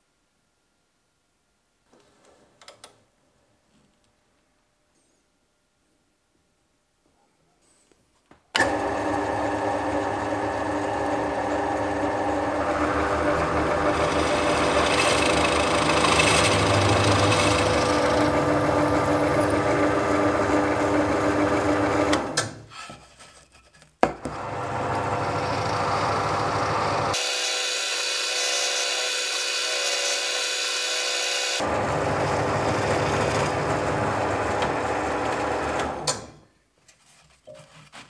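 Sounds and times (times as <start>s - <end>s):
drill bit boring into plywood: 8.6s - 22.2s, 24.3s - 31.7s
drill press motor humming: 8.6s - 22.4s, 24.3s - 36.1s.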